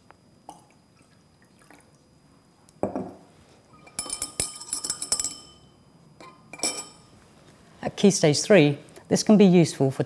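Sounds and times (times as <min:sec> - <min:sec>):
glass clinks: 0:03.9 - 0:07.1.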